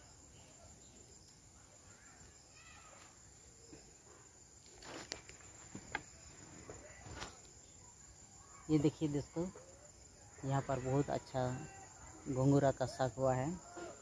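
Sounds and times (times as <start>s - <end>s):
faint rustling: 3.8s - 7.6s.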